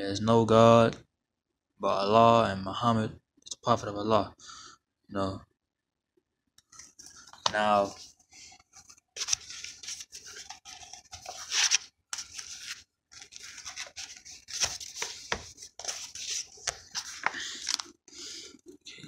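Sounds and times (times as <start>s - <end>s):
phone handling rubbing: 6.7s - 17.9s.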